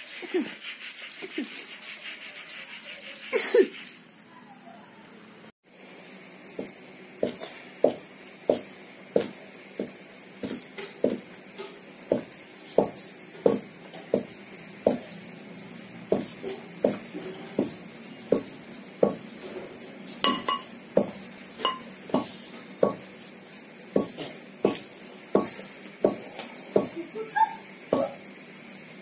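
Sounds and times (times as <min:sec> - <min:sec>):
metal pestle pounding in mortar: 0:20.2 - 0:23.1, 0:24.0 - 0:26.2.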